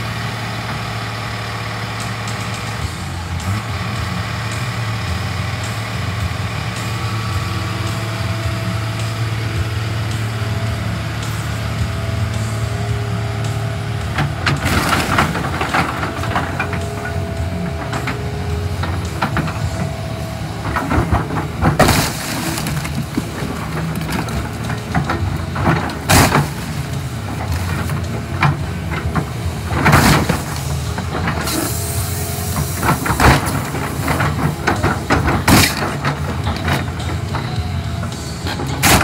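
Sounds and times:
excavator diesel engine running: 0.0s - 39.0s
sheet metal crunching: 14.4s - 31.8s
glass breaking: 21.0s - 24.7s, 35.3s - 36.1s.

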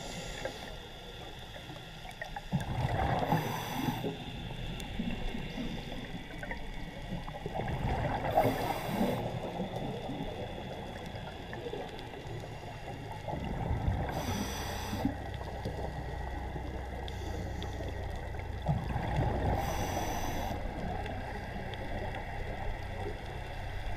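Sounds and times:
low rumble of moving water: 0.0s - 23.9s
hissing rush of bubbles: 2.5s - 10.4s.

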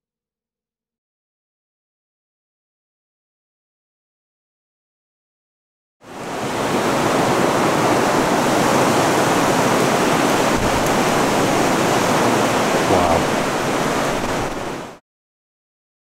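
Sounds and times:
running water rushing: 6.1s - 15.0s.

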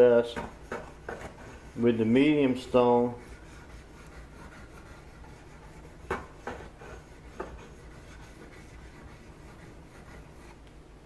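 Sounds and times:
knife scraping on whetstone: 3.2s - 10.6s.

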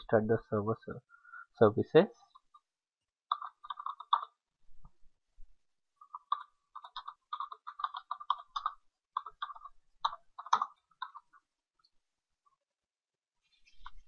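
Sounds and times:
computer keyboard typing: 3.3s - 4.4s, 6.0s - 11.5s.

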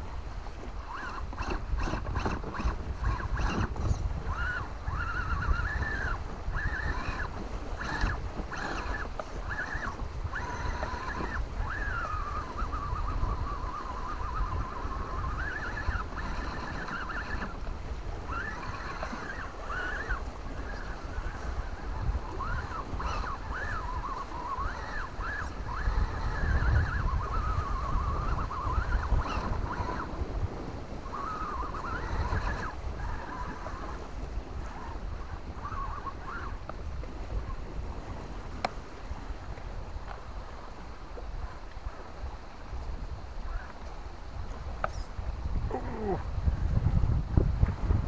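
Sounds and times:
wind rumble on microphone: 0.0s - 48.0s
electric motor whining: 0.6s - 30.4s, 31.0s - 36.8s.

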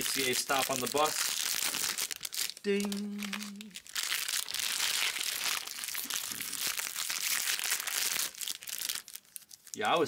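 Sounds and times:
wrappers crinkling: 0.0s - 10.0s
person singing a short note: 2.6s - 3.8s.

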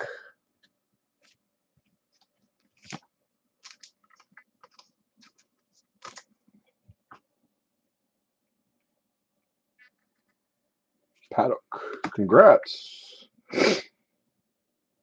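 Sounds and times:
trading cards rustling and clicking: 2.1s - 7.2s.

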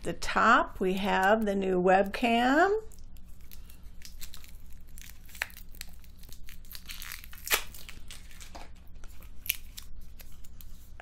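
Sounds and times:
plastic packaging crinkling: 2.8s - 10.9s.

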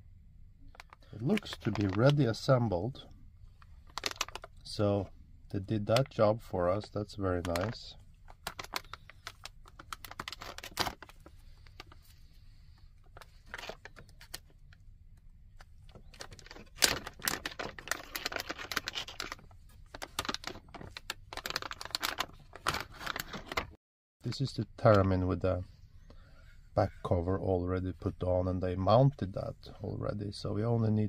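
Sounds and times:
plastic bags crinkling: 0.7s - 3.0s, 3.7s - 4.8s, 6.8s - 14.8s, 15.6s - 23.8s.

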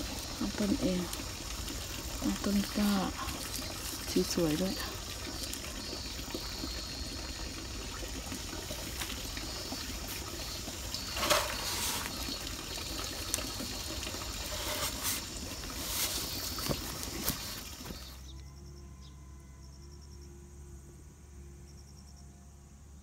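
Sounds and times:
basket set down: 11.2s - 12.1s.

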